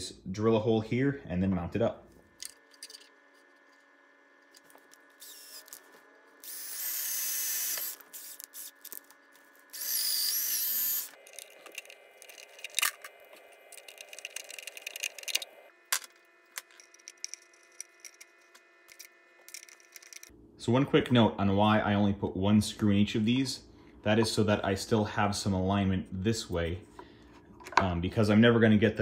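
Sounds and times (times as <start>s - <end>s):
cordless drill boring into wood: 5.2s - 5.7s, 6.4s - 8.8s, 9.7s - 11.9s.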